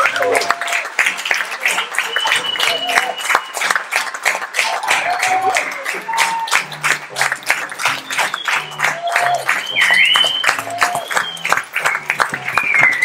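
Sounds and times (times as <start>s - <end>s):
audience applause: 0.0s - 13.0s
music playing: 4.9s - 13.0s.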